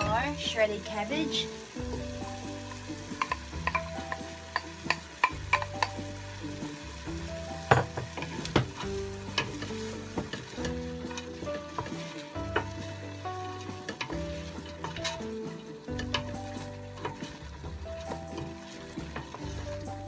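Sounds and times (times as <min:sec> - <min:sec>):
cabbage sizzling in pot: 0:00.0 - 0:20.0
soft background music: 0:00.0 - 0:20.0
wooden spoon knocking pot: 0:03.1 - 0:06.0, 0:07.7 - 0:12.8.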